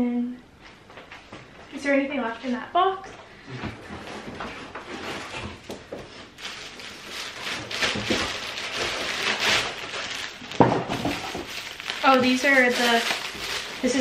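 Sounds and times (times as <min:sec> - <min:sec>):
plastic packaging crinkling: 0:06.1 - 0:14.0.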